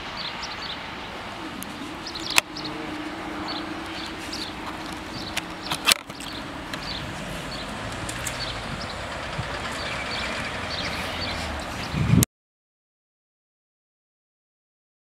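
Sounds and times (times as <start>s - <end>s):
small birds chirping: 0.2s - 12.2s.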